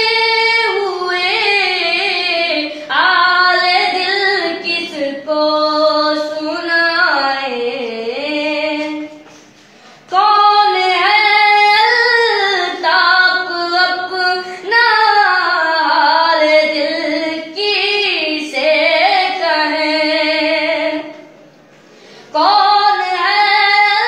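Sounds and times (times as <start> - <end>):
boy singing unaccompanied: 10.1 - 21.2, 22.4 - 24.0.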